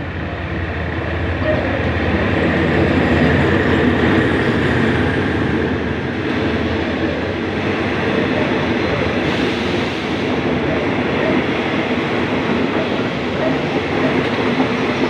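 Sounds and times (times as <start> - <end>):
diesel locomotive passing: 0.0 - 15.0
train coaches rolling on rails: 0.0 - 15.0.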